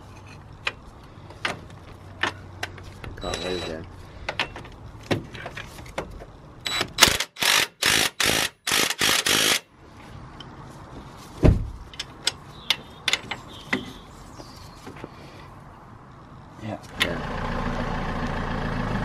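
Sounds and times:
ratchet spanner clicking: 6.6 - 9.7.

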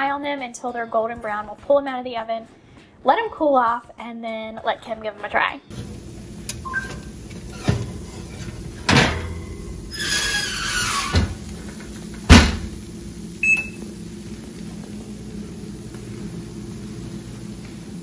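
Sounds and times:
baking sheet clanking on oven rack: 6.5 - 12.7.

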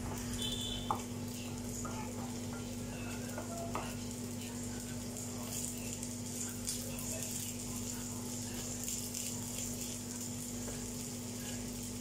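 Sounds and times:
rice sizzling in a frying pan: 0.0 - 12.0.

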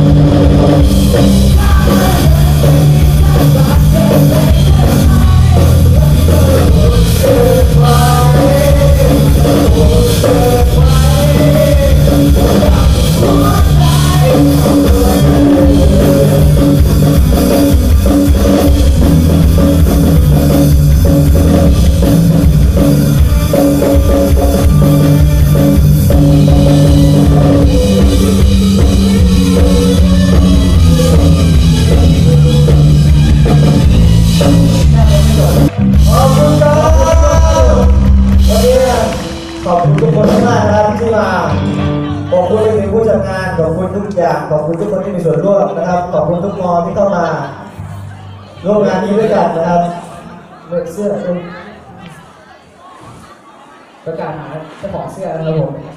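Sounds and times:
drum kit: 0.0 - 42.7
live band amplified music: 0.0 - 55.9
person singing: 0.8 - 20.5, 21.4 - 43.9.

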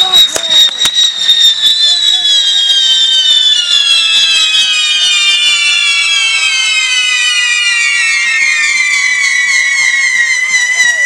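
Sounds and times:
whistling fireworks: 0.0 - 11.0.

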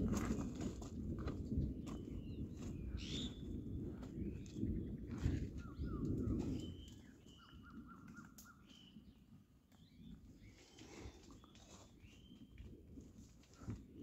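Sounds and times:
footsteps on loose stones: 0.0 - 7.5
small birds chirping: 1.8 - 12.8.

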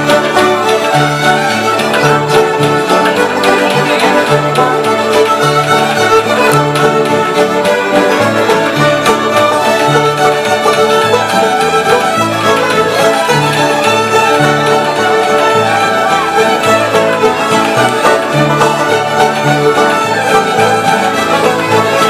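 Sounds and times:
fiddles playing in unison: 0.0 - 22.0.

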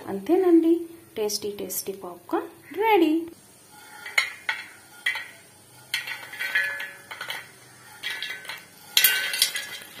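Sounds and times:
metal utensil scraping pan: 3.5 - 10.0.

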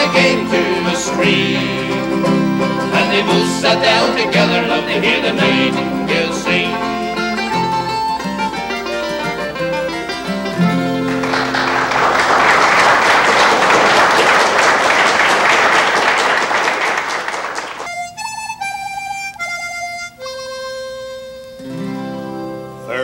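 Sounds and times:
audience applauding: 0.0 - 18.2.

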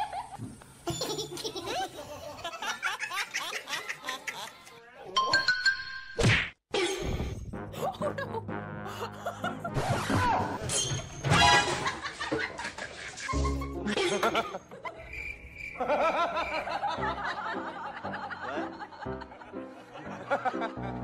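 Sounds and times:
people laughing and giggling: 0.0 - 5.0, 7.7 - 10.7, 11.6 - 15.1, 15.8 - 21.0
background music: 7.1 - 12.0, 13.3 - 14.6, 15.9 - 21.0.

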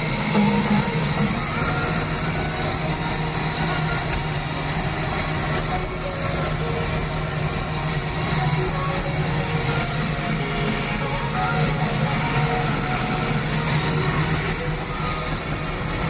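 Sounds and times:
engine running under load: 0.0 - 16.0.

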